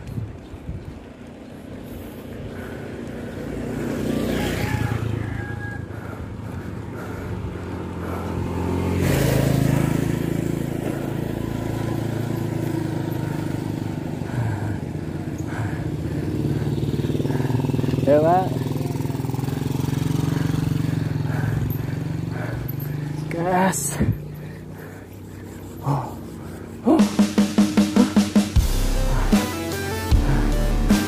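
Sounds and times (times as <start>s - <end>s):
motorcycle engine running: 0.0s - 31.0s.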